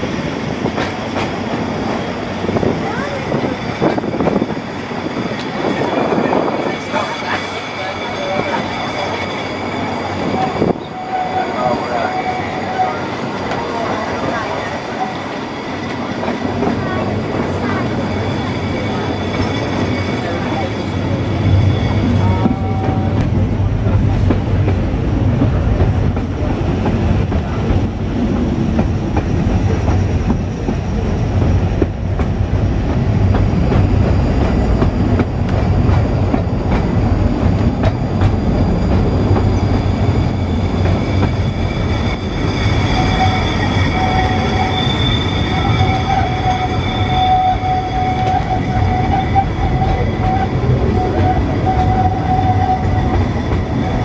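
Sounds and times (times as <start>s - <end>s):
tram wheels rumbling on track: 0.0s - 54.0s
high squeal: 2.8s - 23.2s, 35.9s - 54.0s.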